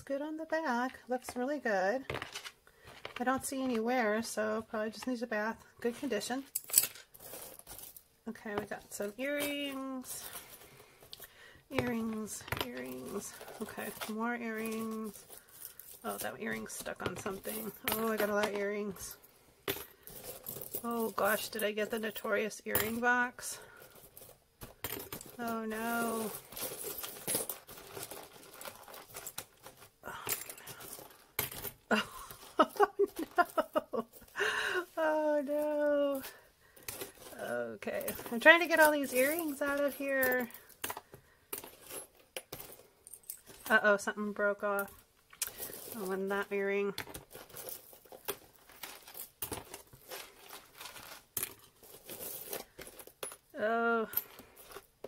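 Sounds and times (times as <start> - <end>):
metal jewelry clinking: 5.8 - 55.0
crinkling rustle: 6.6 - 19.2, 23.4 - 43.8, 45.2 - 53.5.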